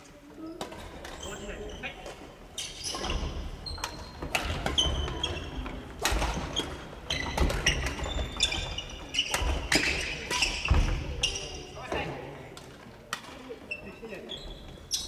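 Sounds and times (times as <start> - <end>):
sneakers squeaking: 0.2 - 12.0, 13.6 - 15.0
rackets hitting shuttlecocks: 3.8 - 10.9.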